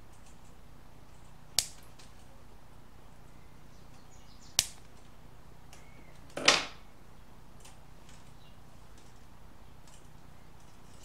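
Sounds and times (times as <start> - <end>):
pliers clicking: 0.1 - 2.3.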